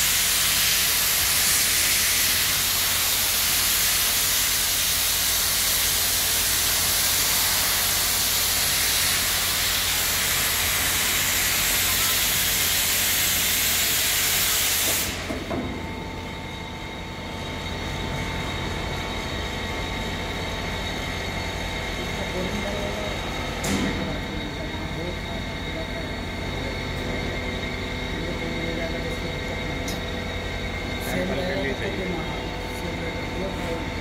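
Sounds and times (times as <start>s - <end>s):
loud hiss: 0.0s - 15.7s.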